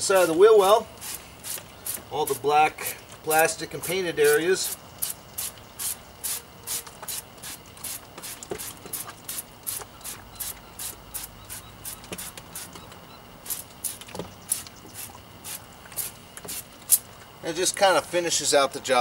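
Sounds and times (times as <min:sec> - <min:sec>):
spray bottle hissing: 0:01.0 - 0:02.0, 0:03.8 - 0:12.7, 0:13.4 - 0:17.0.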